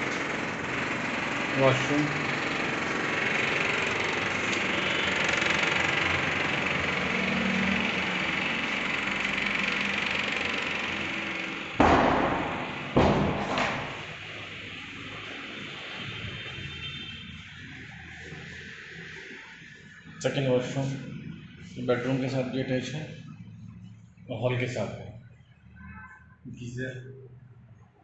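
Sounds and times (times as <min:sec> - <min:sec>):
loud thumps: 0:11.8 - 0:14.2.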